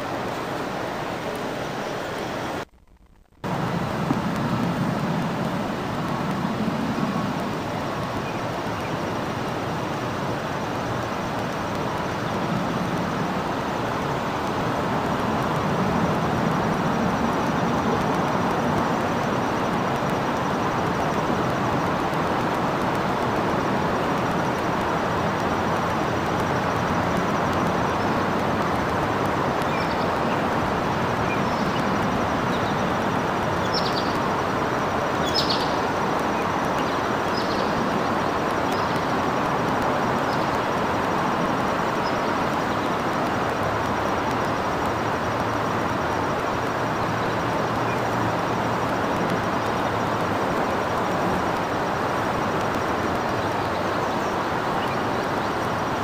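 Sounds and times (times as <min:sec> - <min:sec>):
distant road traffic roar: 0:03.4 - 0:56.0
faint high bird chirps: 0:33.6 - 0:34.2, 0:35.2 - 0:35.8.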